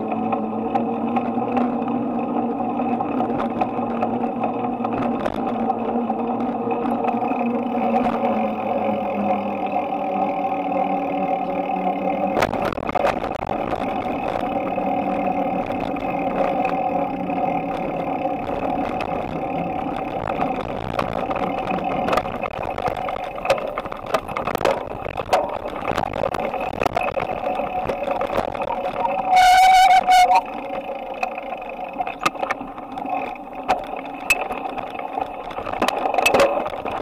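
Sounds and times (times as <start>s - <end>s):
bicycle knocks and rattles: 0.0s - 8.4s, 12.3s - 37.0s
engine-like hum: 0.0s - 37.0s.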